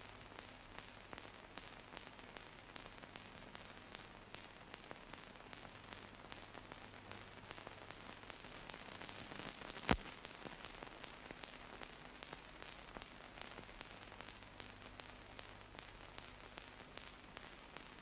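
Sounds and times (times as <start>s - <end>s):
film surface hiss and crackles: 0.0s - 18.0s.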